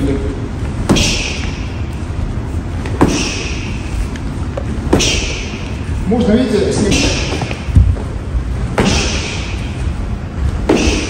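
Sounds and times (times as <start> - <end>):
knee strikes thudding on pad: 0.8 - 1.5.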